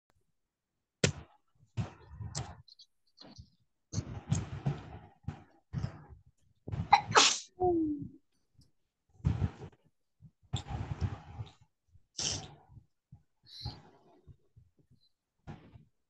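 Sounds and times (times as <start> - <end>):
person sneezing: 6.9 - 7.5.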